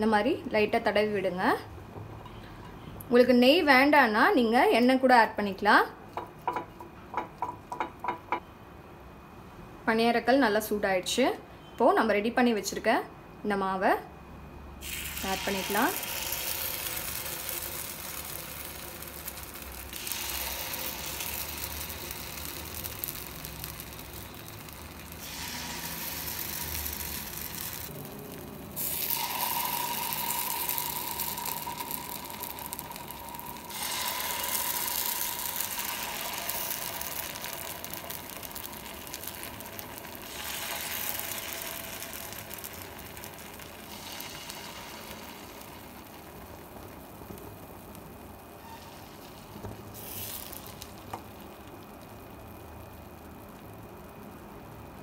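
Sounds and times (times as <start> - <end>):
batter sizzling in hot pan: 14.8 - 55.0.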